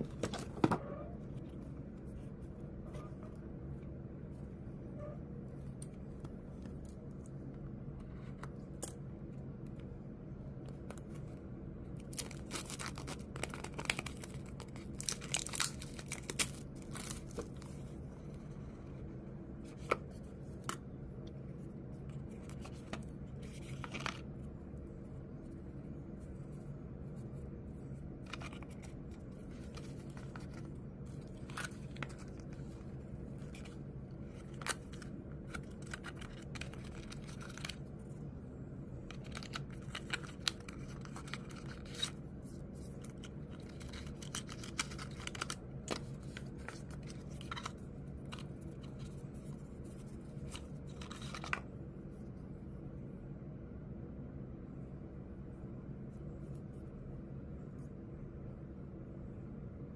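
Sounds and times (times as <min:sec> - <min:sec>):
steady low hum: 0:00.0 - 0:59.9
tearing and crinkling: 0:12.0 - 0:17.9, 0:28.2 - 0:38.0, 0:39.1 - 0:51.6.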